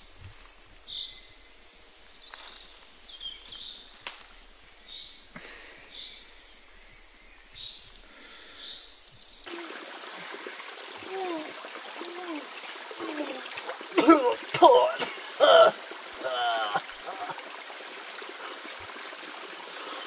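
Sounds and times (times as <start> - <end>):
stream trickling over rocks: 9.4 - 20.0.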